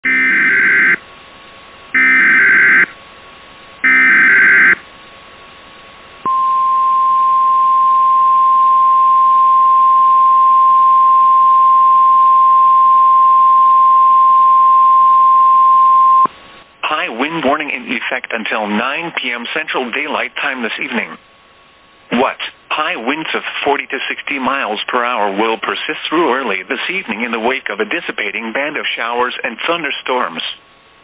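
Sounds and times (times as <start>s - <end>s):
single-pitch warning alarm tone: 0.0s - 1.0s, 1.9s - 3.0s, 3.8s - 4.8s, 6.3s - 16.3s.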